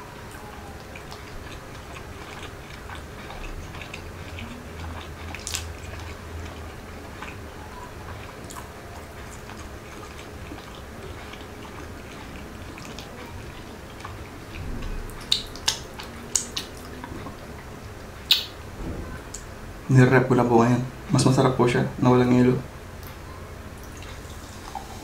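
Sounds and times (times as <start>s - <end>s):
chewing food: 0.0s - 19.5s, 23.0s - 25.0s
low steady hum: 0.0s - 25.0s
wet mouth clicks: 2.3s - 6.6s, 14.8s - 17.4s, 18.3s - 18.6s.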